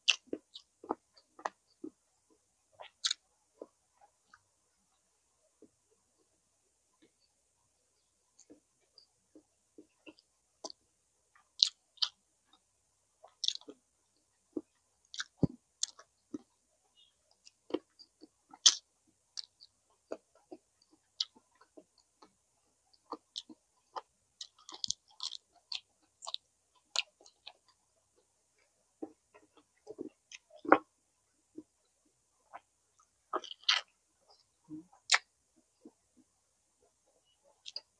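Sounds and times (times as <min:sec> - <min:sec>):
person chewing and smacking: 0:00.0 - 0:04.4, 0:08.4 - 0:12.6, 0:13.2 - 0:13.8, 0:14.5 - 0:16.6, 0:17.3 - 0:30.9, 0:32.5 - 0:36.3, 0:37.5 - 0:37.9.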